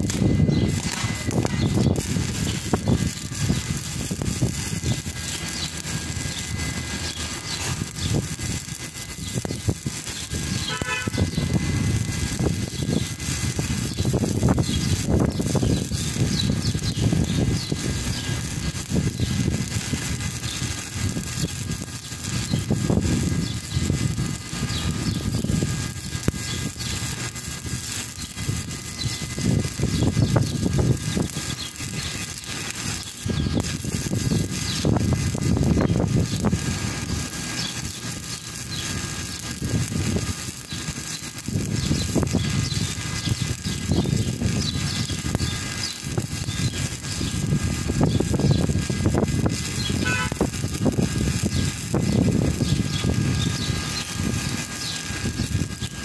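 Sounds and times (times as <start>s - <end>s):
welding arc crackling: 0.0s - 56.0s.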